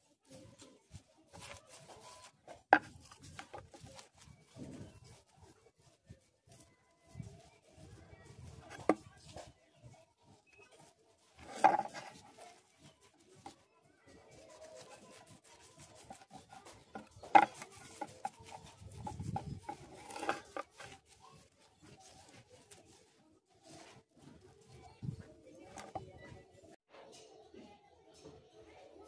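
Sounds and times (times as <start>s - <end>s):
cloth rubbing on steel blade: 10.4s - 26.8s.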